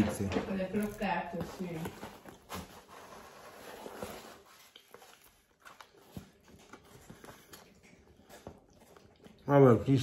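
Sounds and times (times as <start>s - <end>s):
faint chewing: 4.4s - 10.0s.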